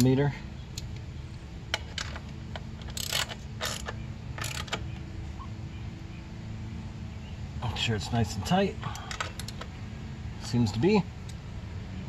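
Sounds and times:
ratchet wrench clicking: 0:02.8 - 0:04.8, 0:08.9 - 0:09.6.

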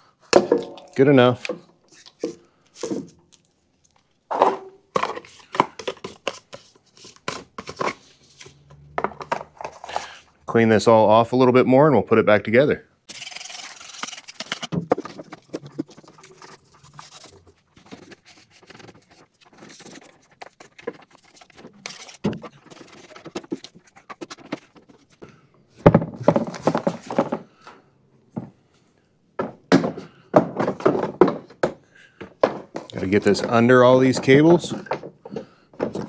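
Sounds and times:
knocks of mower parts handled: 0:29.4 - 0:36.0.

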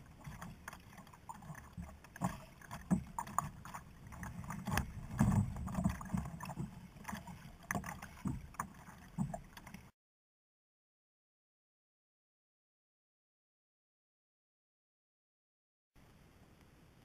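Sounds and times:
knocks and bumps on kayak: 0:00.0 - 0:09.9
muffled rumble of water and wind: 0:00.0 - 0:09.9, 0:16.0 - 0:17.0.

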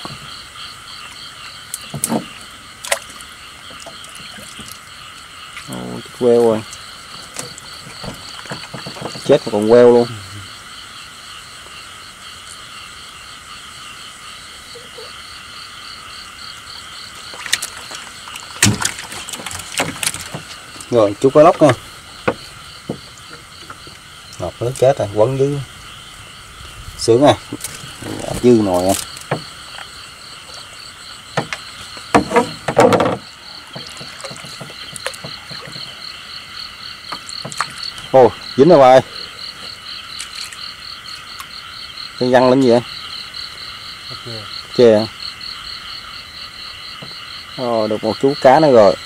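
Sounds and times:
frogs and insects trilling: 0:00.0 - 0:49.0
paddle splashing in water: 0:01.7 - 0:05.7, 0:06.7 - 0:09.4, 0:17.1 - 0:24.2, 0:27.4 - 0:38.1
fish thumping in boat: 0:06.6 - 0:09.7, 0:17.2 - 0:24.1, 0:27.4 - 0:36.3, 0:37.1 - 0:38.1.

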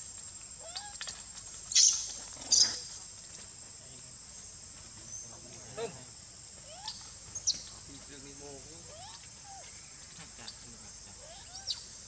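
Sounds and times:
insect buzz: 0:00.0 - 0:12.0
macaques squealing: 0:01.7 - 0:03.0, 0:06.7 - 0:07.8, 0:08.8 - 0:12.0.

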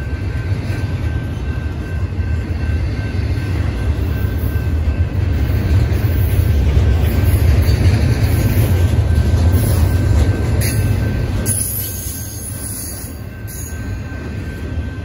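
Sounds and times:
freight train rumbling past: 0:00.0 - 0:15.0.

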